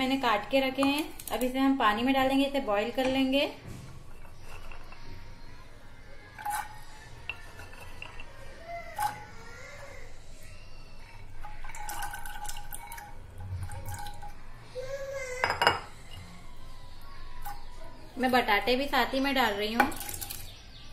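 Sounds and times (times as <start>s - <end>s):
utensils clinking on metal pot: 4.0s - 5.1s, 6.4s - 9.3s, 11.4s - 14.4s, 15.4s - 16.3s, 17.4s - 20.5s
water pouring and splashing: 19.9s - 20.5s.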